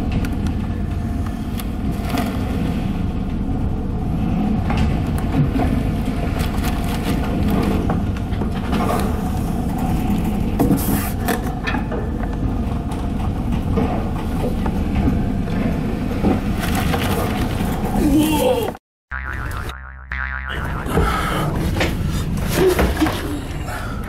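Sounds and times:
ship engine droning: 0.0 - 18.0, 19.1 - 24.0
heavy sea: 0.0 - 19.4.

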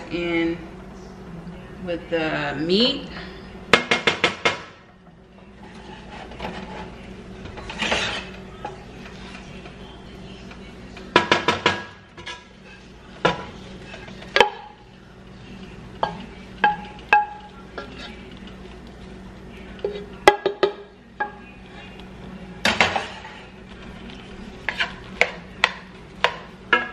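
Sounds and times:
spatula scraping through rice: 5.6 - 7.0, 7.6 - 8.4, 23.0 - 25.2.

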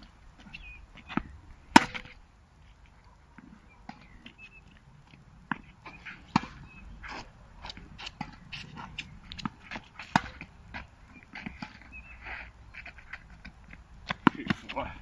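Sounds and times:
tennis ball bouncing on hard court: 1.0 - 2.1, 5.5 - 11.9, 13.7 - 14.7
tennis ball struck by rackets: 1.0 - 2.1, 5.5 - 11.9, 13.7 - 14.7.

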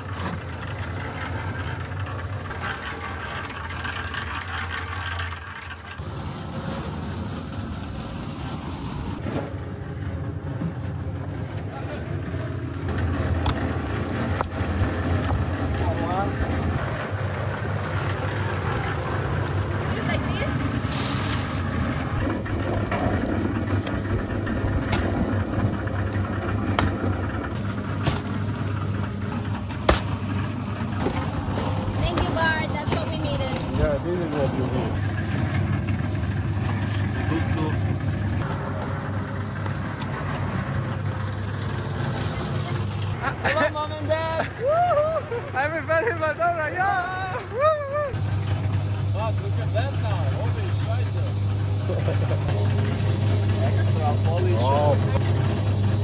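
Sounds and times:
mix rattling in turning drum: 0.0 - 8.6, 9.2 - 44.6
concrete mixer running: 0.0 - 56.0.

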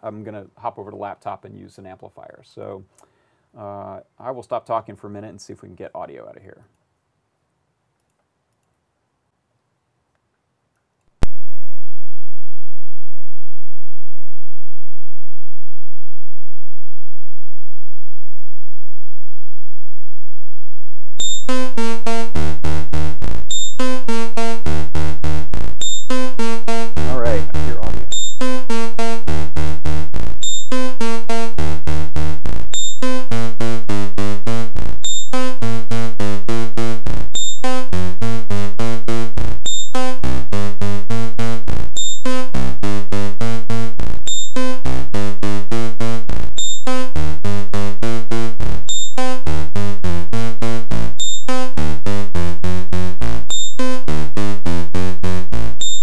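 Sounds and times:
synthesizer looping electronic notes: 21.2 - 56.0.

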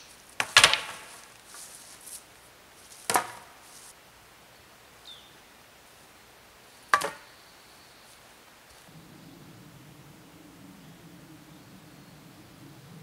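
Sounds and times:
sharp wooden knocks: 0.4 - 1.1, 3.1 - 3.5, 6.9 - 7.2.

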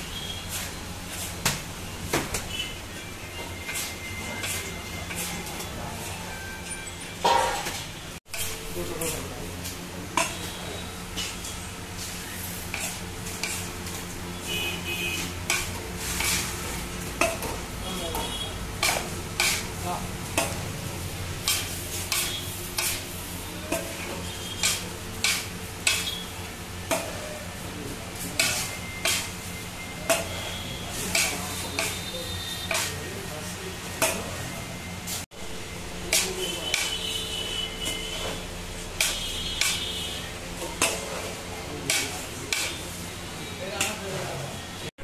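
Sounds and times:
pans and utensils knocking: 7.2 - 7.8.

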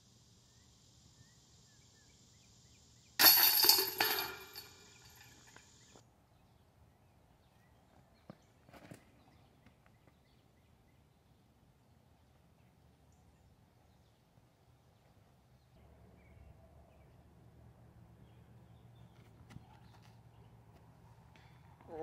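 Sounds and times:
chains clanging and rattling: 3.2 - 5.7
disc striking basket chains: 3.2 - 5.9.

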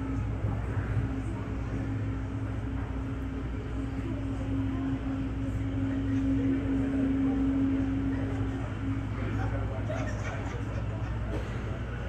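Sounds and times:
parked airliner hum: 0.0 - 12.0.

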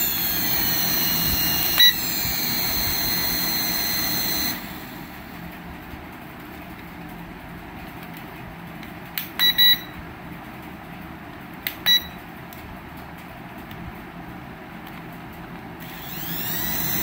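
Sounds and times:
remote control beeps: 1.3 - 2.1, 9.4 - 10.0, 11.9 - 12.2.

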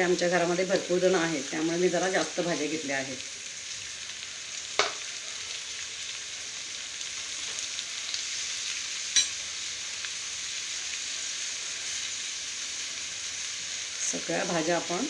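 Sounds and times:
vegetables sizzling in hot oil: 0.0 - 15.0
spoon clinking against pan: 9.1 - 9.4.

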